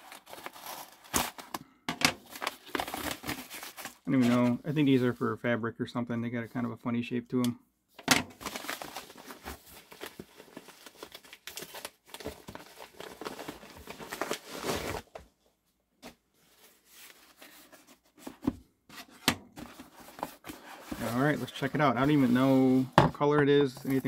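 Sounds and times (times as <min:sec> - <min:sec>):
plastic mailer rustling and crinkling: 0:00.0 - 0:05.2, 0:08.2 - 0:15.2, 0:16.4 - 0:23.0, 0:23.6 - 0:24.0.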